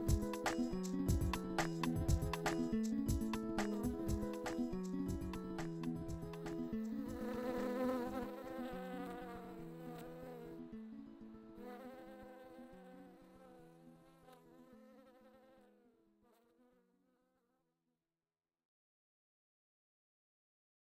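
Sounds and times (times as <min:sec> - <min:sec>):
bee buzzing: 0:00.0 - 0:04.8, 0:05.6 - 0:10.9, 0:11.5 - 0:16.8.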